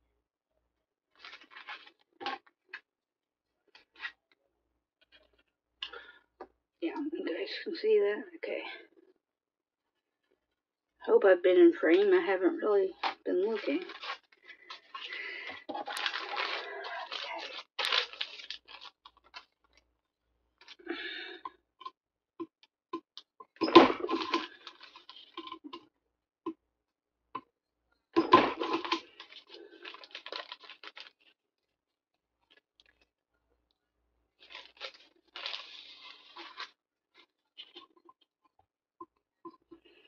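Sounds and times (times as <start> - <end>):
paper rustling and tearing: 1.2 - 2.0, 13.5 - 19.5, 28.5 - 31.2, 34.4 - 36.7.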